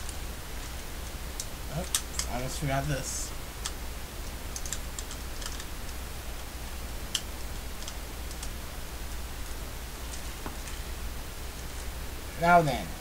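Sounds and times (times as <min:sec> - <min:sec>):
steady low hum: 0:00.0 - 0:13.0
plastic toy parts clicking: 0:01.4 - 0:02.3, 0:04.5 - 0:06.0.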